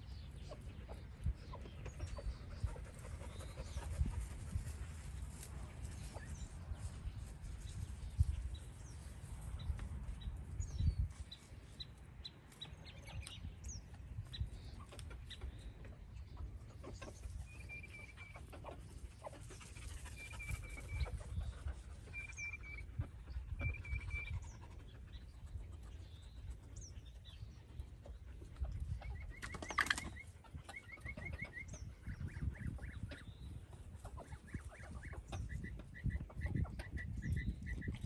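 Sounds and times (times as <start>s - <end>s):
chickens calling: 0.0s - 38.0s
chickens chirping: 0.0s - 38.0s.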